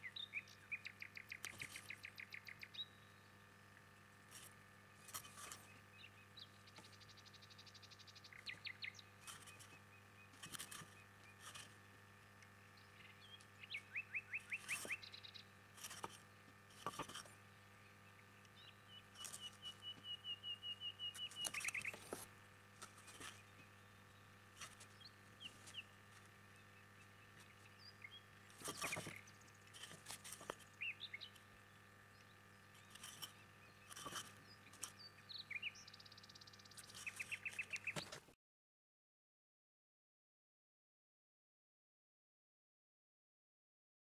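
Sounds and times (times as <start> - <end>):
bird chirps with a trill: 0.0 - 3.3, 5.4 - 11.7, 12.8 - 15.5, 17.9 - 22.1, 30.8 - 38.2
steady low hum: 0.0 - 38.4.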